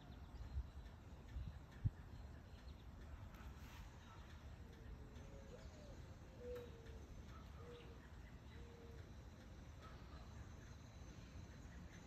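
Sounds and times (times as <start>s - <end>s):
low steady background hush: 0.0s - 12.0s
bird cooing: 4.0s - 10.6s.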